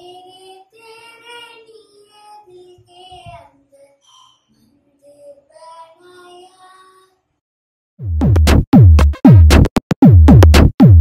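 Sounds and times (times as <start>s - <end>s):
child singing: 0.0s - 7.3s
electronic music with bass hits: 8.0s - 11.0s.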